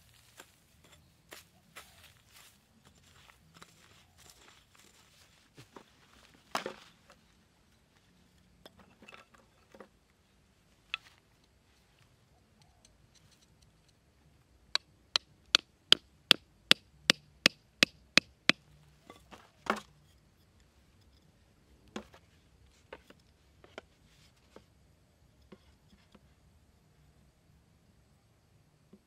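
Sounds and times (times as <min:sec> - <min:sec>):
hammer knocking wooden stake: 0:14.8 - 0:18.6.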